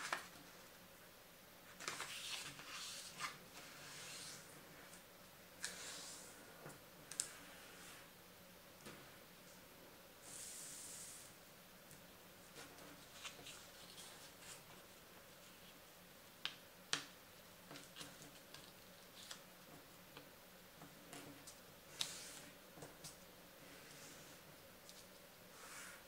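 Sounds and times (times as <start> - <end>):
paper rustling: 1.7 - 4.4.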